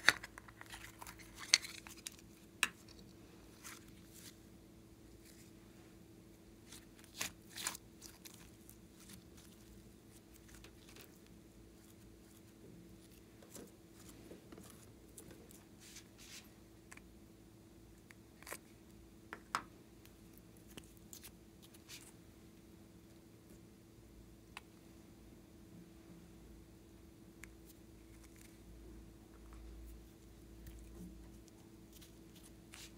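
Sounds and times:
steady low hum: 0:00.0 - 0:32.9
soft sticky crackles of slime: 0:06.6 - 0:17.1, 0:20.0 - 0:22.2, 0:29.5 - 0:32.9.

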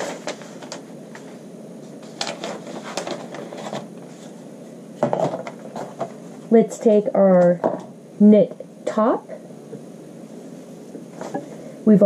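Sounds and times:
paper rustling: 0:00.0 - 0:04.4.

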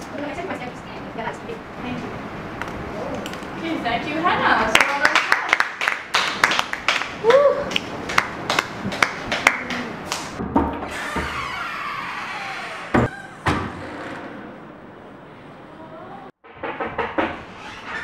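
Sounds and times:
group clapping: 0:04.7 - 0:10.4.

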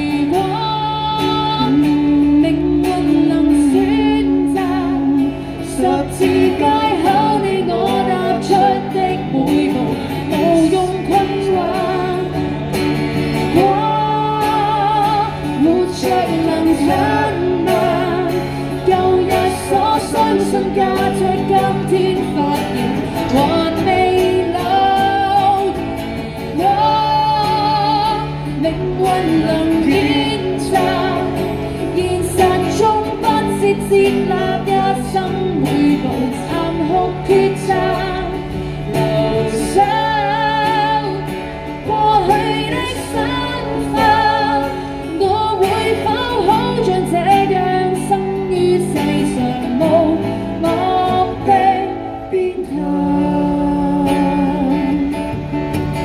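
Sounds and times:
amplified singing: 0:00.0 - 0:55.4
acoustic guitar: 0:00.0 - 0:56.0.

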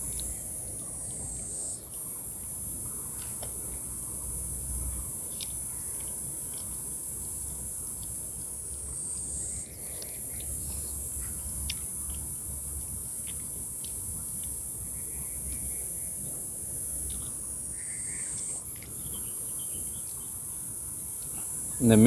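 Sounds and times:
cicadas buzzing: 0:00.0 - 0:22.0.

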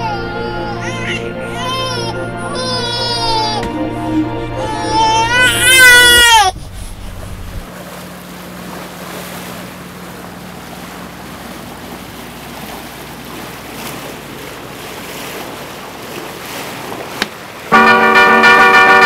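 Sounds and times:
water rushing along hull: 0:00.0 - 0:19.0
wind buffeting microphone: 0:06.0 - 0:07.8.

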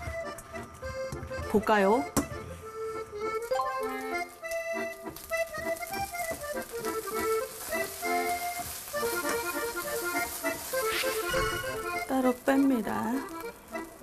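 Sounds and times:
accordion-like melody: 0:00.0 - 0:14.0.

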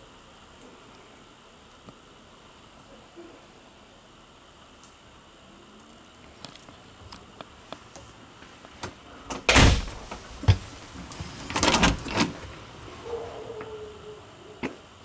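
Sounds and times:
door clicks: 0:08.8 - 0:12.7
rattling rush: 0:09.5 - 0:13.0.

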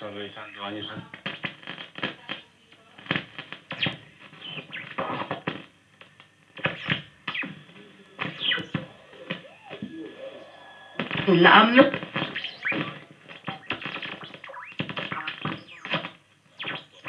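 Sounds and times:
radio static crackles and clicks: 0:00.0 - 0:17.0
snatches of broadcast audio: 0:00.0 - 0:17.0
heterodyne whistles gliding: 0:08.4 - 0:13.7.

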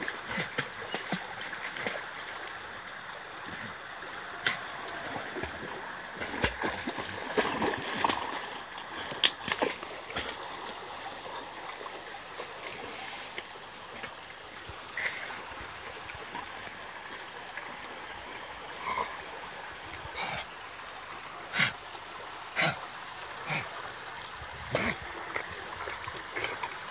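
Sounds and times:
rushing water: 0:00.0 - 0:26.9
dog splashing in water: 0:04.5 - 0:10.4.

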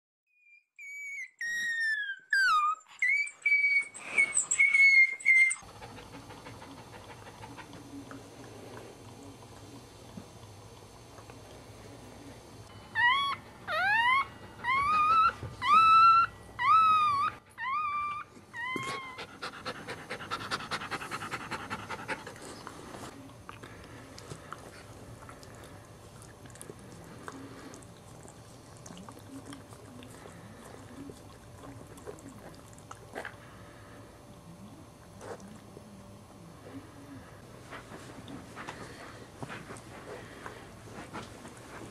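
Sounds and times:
puppy squealing: 0:00.4 - 0:05.6, 0:12.9 - 0:19.4.

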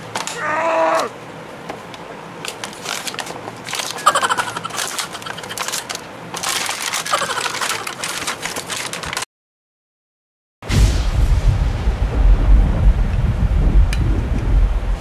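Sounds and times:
plastic packaging crackling: 0:02.5 - 0:09.3.

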